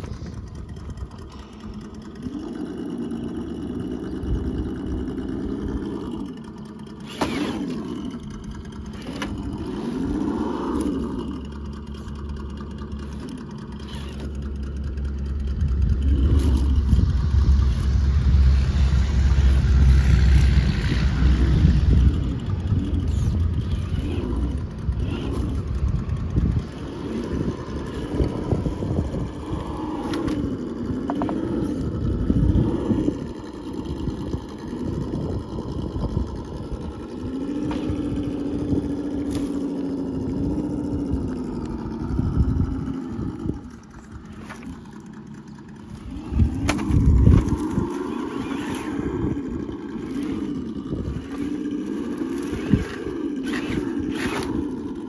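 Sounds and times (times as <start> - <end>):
low rumble: 0.0 - 55.0
toy car electric motor whining: 0.0 - 55.0.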